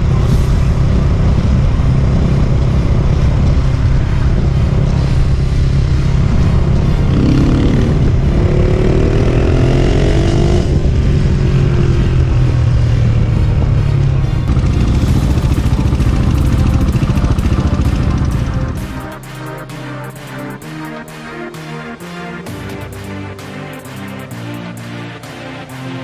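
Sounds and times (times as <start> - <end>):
wind rushing over microphone: 0.0 - 14.6
motorcycle engine: 0.0 - 26.0.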